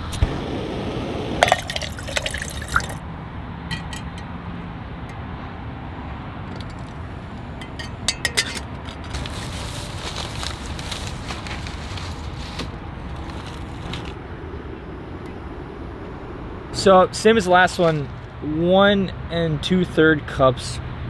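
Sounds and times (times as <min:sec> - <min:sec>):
pot clicking: 0:01.4 - 0:03.0.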